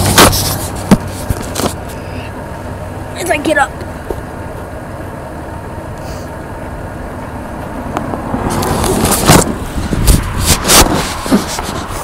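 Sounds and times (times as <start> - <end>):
handling noise on microphone: 0.0 - 2.0, 8.1 - 12.0
road traffic going by: 0.0 - 12.0.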